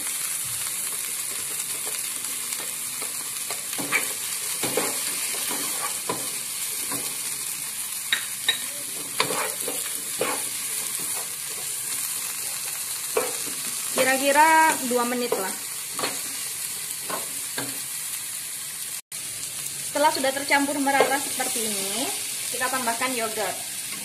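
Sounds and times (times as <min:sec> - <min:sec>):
food sizzling: 0:00.0 - 0:24.0
spatula scraping a pot: 0:03.8 - 0:06.2, 0:08.9 - 0:11.8.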